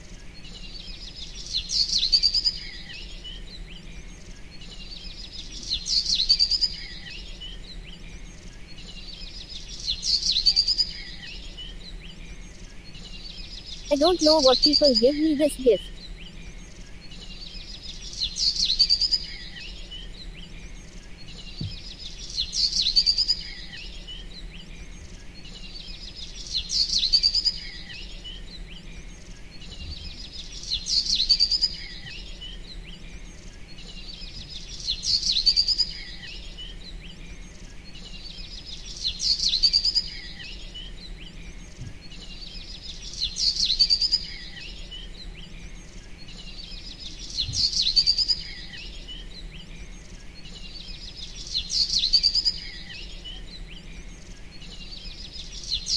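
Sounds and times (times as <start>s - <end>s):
bird chirps and trills: 13.5s - 15.9s.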